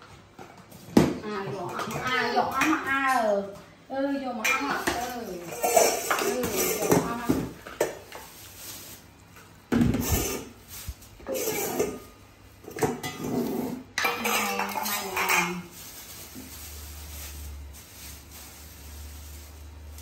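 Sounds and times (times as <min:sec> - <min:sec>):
bowls clattering on wooden floor: 0:11.2 - 0:15.7.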